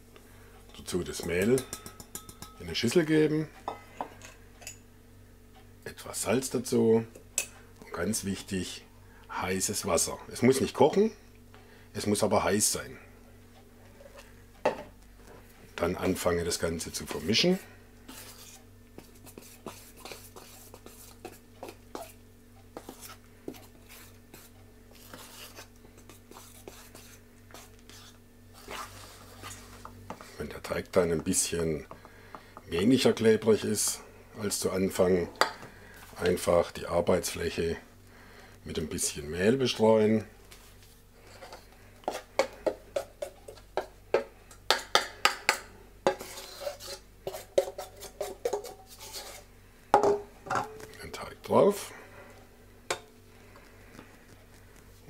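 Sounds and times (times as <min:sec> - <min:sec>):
fork stirring dough: 0:16.9 - 0:30.4, 0:40.5 - 0:49.5, 0:50.7 - 0:55.0
fork scraping a metal bowl: 0:46.1 - 0:49.5.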